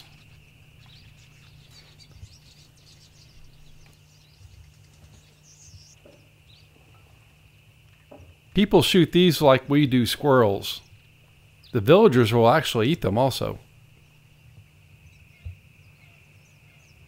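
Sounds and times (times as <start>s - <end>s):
small high bird chirps: 0.0s - 6.7s, 15.0s - 17.0s.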